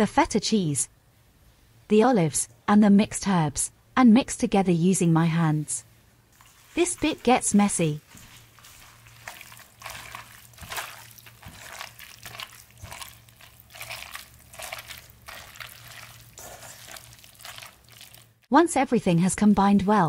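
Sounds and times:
hands squelching wet mixture: 0:06.3 - 0:18.5.

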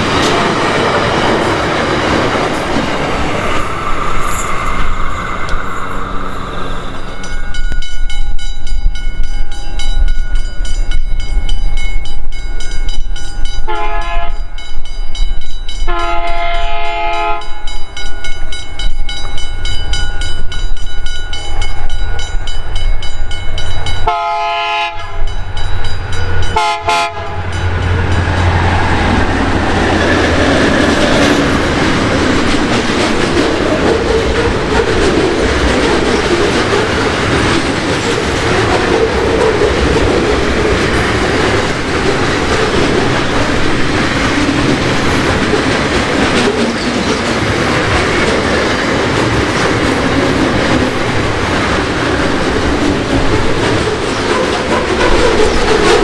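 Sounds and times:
train rumbling on rails: 0:00.0 - 0:56.0
train horn blasts: 0:13.6 - 0:14.6, 0:15.8 - 0:17.7, 0:24.0 - 0:25.4, 0:26.4 - 0:28.5.

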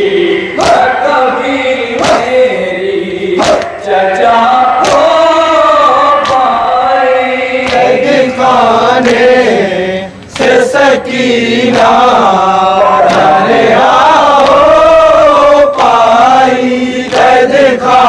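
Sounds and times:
men chanting together: 0:00.0 - 0:18.0
hands slapping chests: 0:00.6 - 0:00.9, 0:02.0 - 0:02.4, 0:03.4 - 0:03.8, 0:04.8 - 0:05.2, 0:06.2 - 0:06.5, 0:07.6 - 0:08.0, 0:10.3 - 0:10.7, 0:13.0 - 0:13.4.

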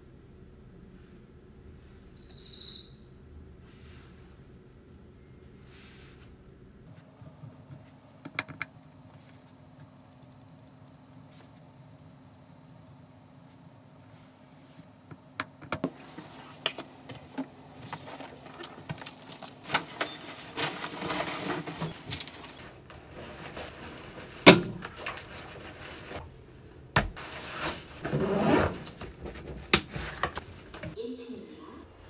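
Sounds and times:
rustling of belongings being packed: 0:15.8 - 0:26.3, 0:27.0 - 0:31.0.

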